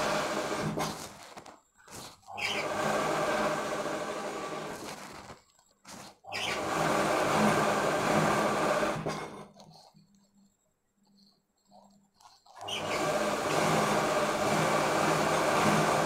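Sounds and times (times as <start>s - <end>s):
sewing machine stitching: 0.0s - 1.3s, 1.9s - 5.2s, 5.9s - 9.8s, 12.5s - 16.0s.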